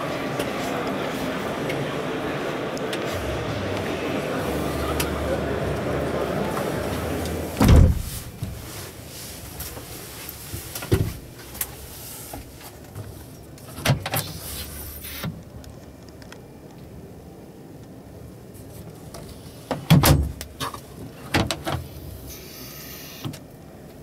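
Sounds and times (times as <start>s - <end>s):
thump: 7.6s - 8.6s.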